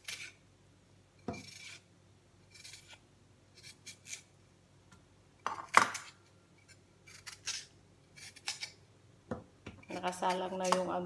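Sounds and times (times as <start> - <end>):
peeler scraping vegetable skin: 0.0 - 0.4, 1.3 - 4.3, 5.9 - 8.8, 9.8 - 11.0.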